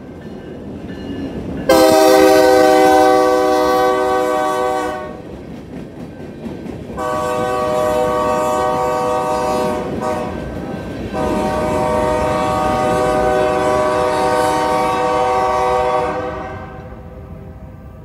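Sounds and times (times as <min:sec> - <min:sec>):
train cars rumbling and clacking: 0:00.0 - 0:18.0
locomotive air horn blasts: 0:01.7 - 0:05.2, 0:07.0 - 0:10.5, 0:11.1 - 0:17.1.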